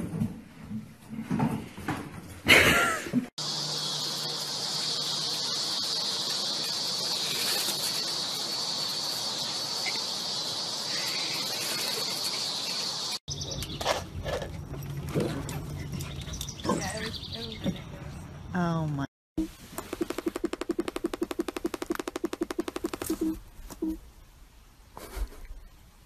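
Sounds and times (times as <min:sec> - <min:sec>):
insect chorus: 0:03.4 - 0:13.2.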